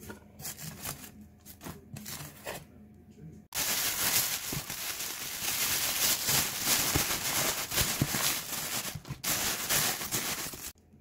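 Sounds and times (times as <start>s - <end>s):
plastic bags rustling: 3.6s - 10.8s.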